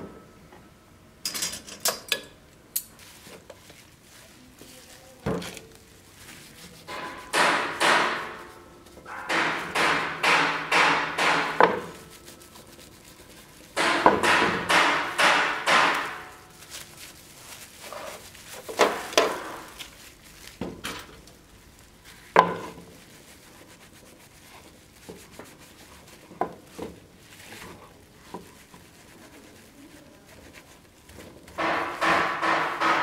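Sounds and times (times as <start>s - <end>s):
cloth scrubbing on dagger hilt: 2.9s - 9.1s, 9.8s - 14.1s, 14.7s - 20.6s, 21.6s - 31.5s
handling knocks and taps: 6.8s - 12.1s, 13.6s - 23.1s, 31.1s - 33.0s.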